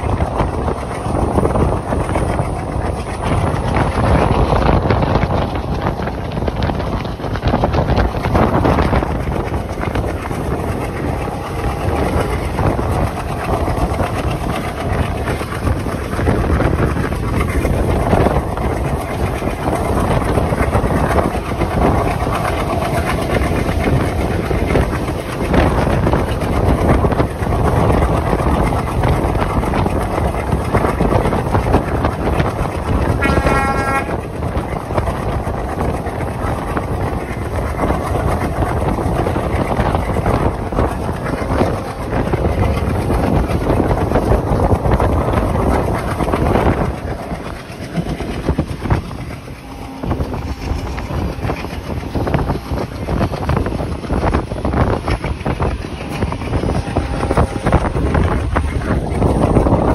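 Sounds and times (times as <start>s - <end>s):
rushing air: 0.0s - 33.4s, 34.1s - 59.9s
train wheels rumbling on rails: 0.0s - 59.9s
train horn blast: 33.1s - 34.2s.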